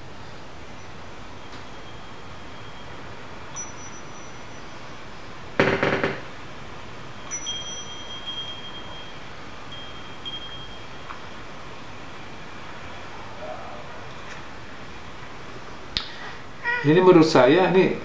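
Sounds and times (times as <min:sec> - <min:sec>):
high chime-like ringing tones: 0:00.7 - 0:05.6, 0:07.0 - 0:11.3.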